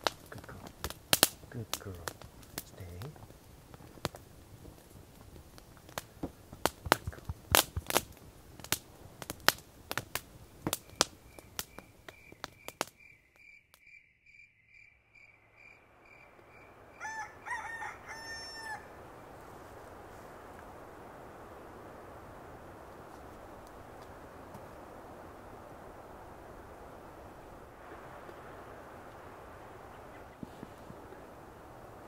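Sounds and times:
steady hiss: 0:00.0 - 0:13.0, 0:15.8 - 0:32.0
wood fire crackling and popping: 0:00.0 - 0:13.8, 0:16.1 - 0:32.0
pitched calls: 0:15.2 - 0:20.9, 0:28.8 - 0:32.0.

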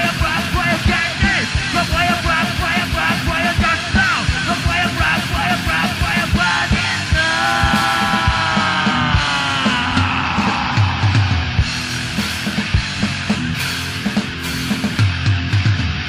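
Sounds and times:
person singing: 0:00.0 - 0:11.7
driving rock drum beat: 0:00.0 - 0:16.0.

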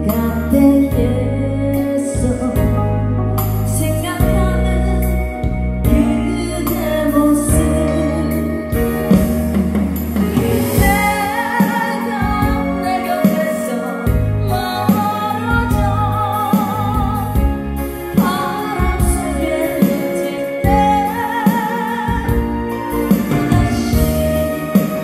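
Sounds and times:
person singing a slow ballad: 0:00.0 - 0:25.0
backing accompaniment: 0:05.3 - 0:25.0.

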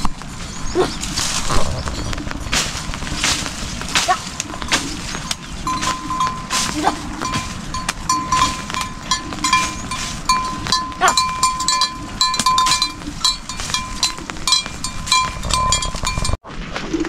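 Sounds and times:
small metal bells ringing: 0:04.2 - 0:16.4.

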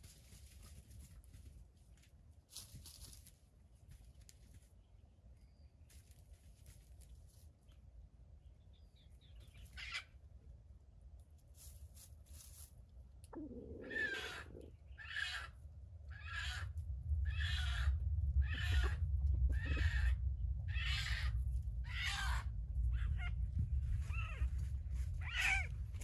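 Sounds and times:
junglefowl harsh calls: 0:09.7 - 0:10.1, 0:13.4 - 0:23.4, 0:25.2 - 0:25.7
low rumble: 0:13.1 - 0:26.0.

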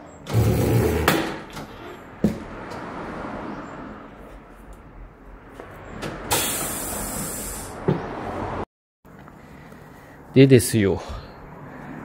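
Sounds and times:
compressed air hiss: 0:06.3 - 0:07.8.

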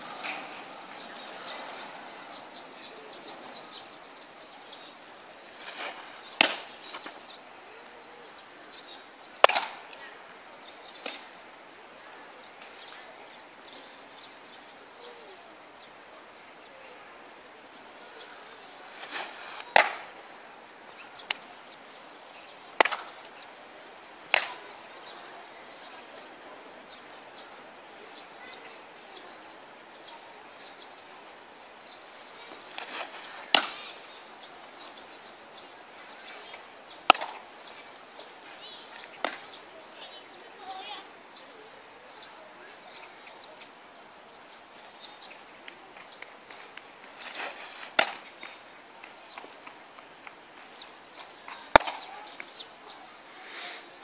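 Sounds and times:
baseball smacking into leather glove: 0:05.6 - 0:07.2, 0:09.4 - 0:09.8, 0:18.9 - 0:20.1, 0:22.8 - 0:23.1, 0:24.3 - 0:24.6, 0:32.7 - 0:33.8, 0:37.1 - 0:37.4, 0:39.2 - 0:39.4, 0:47.2 - 0:49.2, 0:51.7 - 0:52.5.

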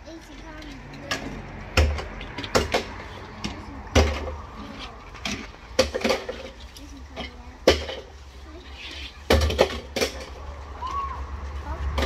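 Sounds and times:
toy cars clacking on plastic table: 0:00.3 - 0:08.2.

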